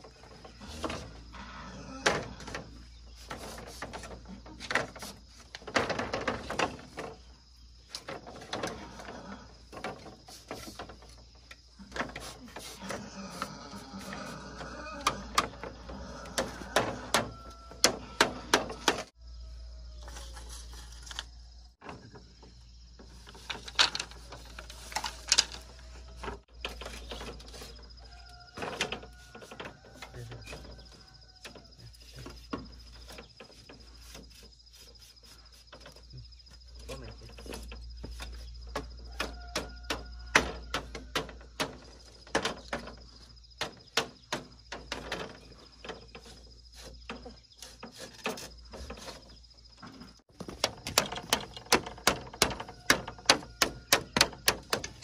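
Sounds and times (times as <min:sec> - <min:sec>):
bamboo slats clattering: 0:00.0 - 0:19.2, 0:19.9 - 0:55.0
hammer tapping bamboo: 0:50.4 - 0:55.0.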